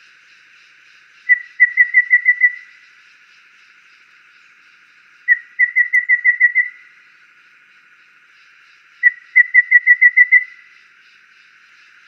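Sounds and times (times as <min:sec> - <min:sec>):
bird whistling notes: 0:01.3 - 0:02.7, 0:05.3 - 0:06.8.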